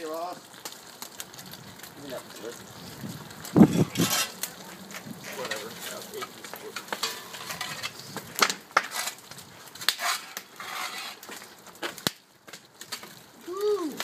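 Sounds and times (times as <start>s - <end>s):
tools scraping and clinking on steel: 3.7s - 4.5s, 5.2s - 8.0s, 9.8s - 11.4s.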